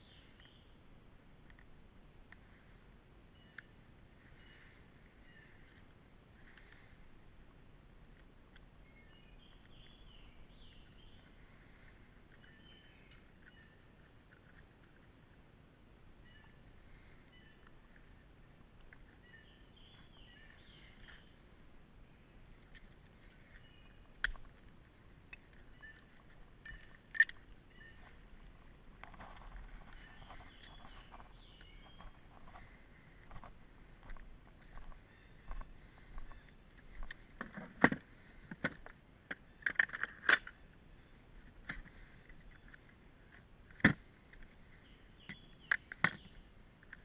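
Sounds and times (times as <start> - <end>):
faint bird chirps: 0.0 - 0.8, 3.3 - 7.1, 8.8 - 14.1, 16.1 - 18.3, 18.9 - 24.4, 25.3 - 37.2, 44.6 - 47.0.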